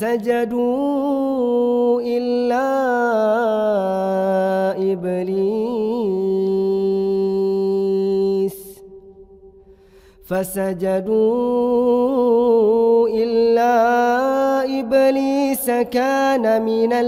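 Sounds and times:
man chanting recitation: 0.0s - 8.8s, 10.2s - 17.0s.

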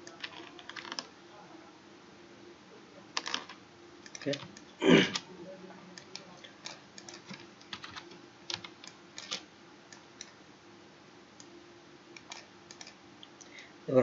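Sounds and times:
keyboard and mouse clicking: 0.0s - 1.1s, 3.2s - 5.2s, 6.0s - 10.4s, 12.2s - 13.0s
faint steady hum: 0.0s - 14.0s.

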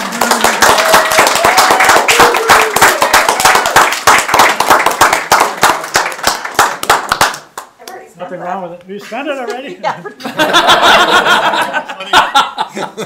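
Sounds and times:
people applauding: 0.0s - 7.8s.

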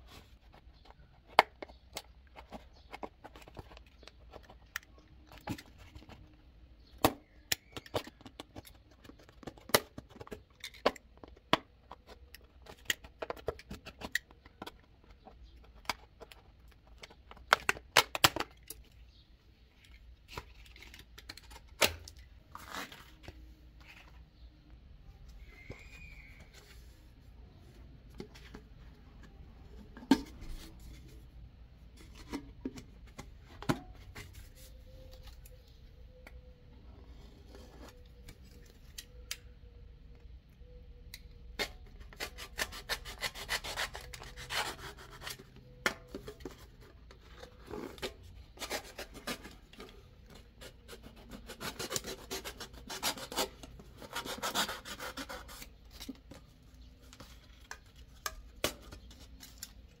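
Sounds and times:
knife sawing through cardboard tube: 51.2s - 55.6s.

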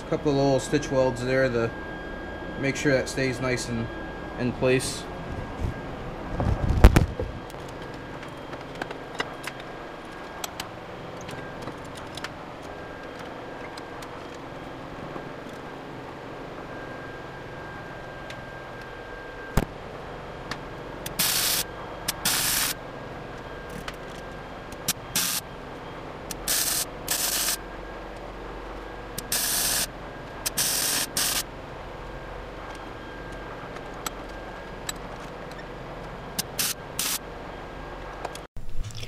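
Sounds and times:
welding arc crackling hiss: 21.1s - 22.8s, 24.9s - 25.4s, 26.3s - 27.6s, 29.2s - 31.5s, 36.4s - 37.2s.

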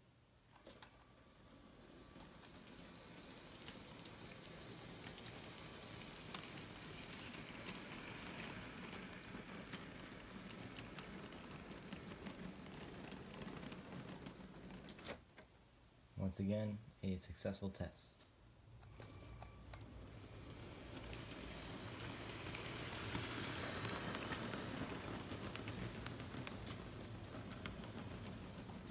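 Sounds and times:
toy train wheels rattling on track: 1.3s - 15.1s, 18.8s - 28.9s.

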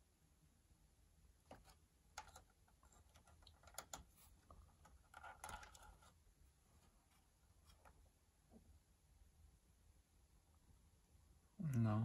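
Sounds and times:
fingers clicking plastic parts: 1.5s - 4.1s, 4.8s - 6.0s.

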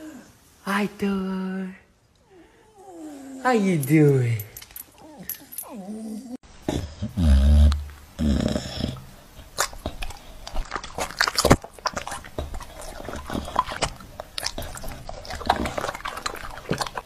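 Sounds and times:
dog chewing fruit: 8.9s - 17.0s.

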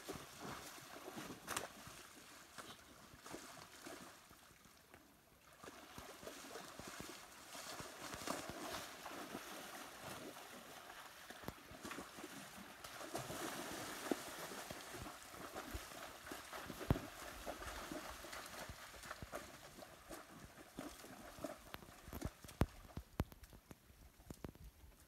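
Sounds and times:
water splashing and sloshing: 0.0s - 24.6s
small ticks: 21.7s - 25.0s.

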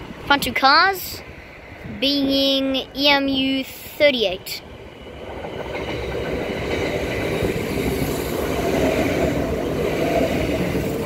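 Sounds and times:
train wheels rushing on rails: 0.0s - 11.0s
train motor hum: 1.2s - 11.0s.

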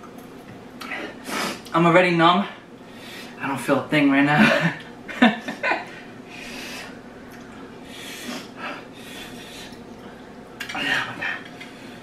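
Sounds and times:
noisy breathing: 2.7s - 3.4s, 5.9s - 12.0s.

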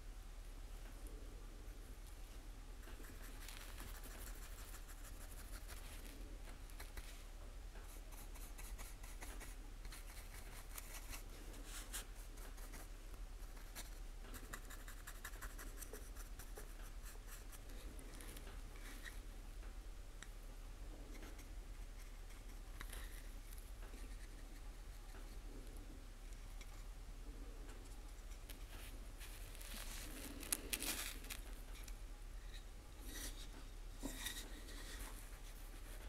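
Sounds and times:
low steady hum: 0.0s - 36.0s
paintbrush scratching plastic: 2.8s - 7.2s, 7.9s - 19.2s.

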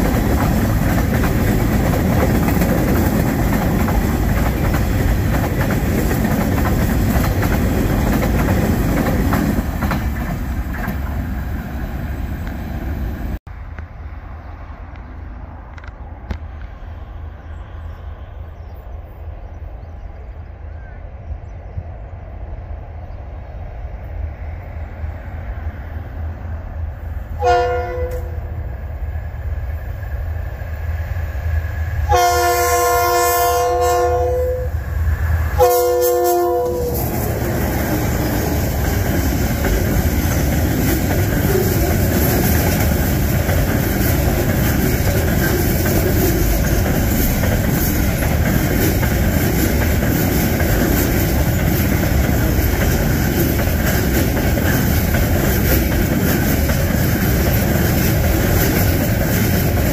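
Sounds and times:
train wheels rumbling and clattering: 0.0s - 17.6s, 19.6s - 59.9s
locomotive horn blasts: 27.4s - 28.5s, 32.1s - 34.8s, 35.6s - 37.1s.

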